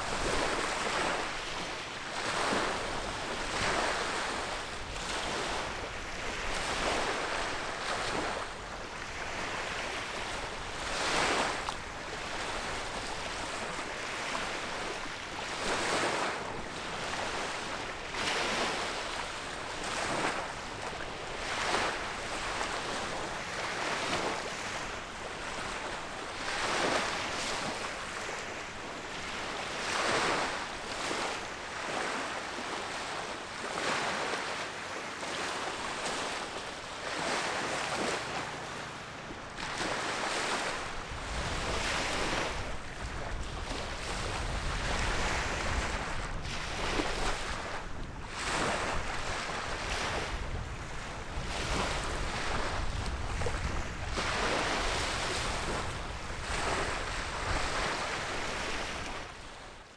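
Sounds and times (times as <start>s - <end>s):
small waves washing against bank: 0.0s - 59.9s
wind rumbling on microphone: 39.3s - 59.7s.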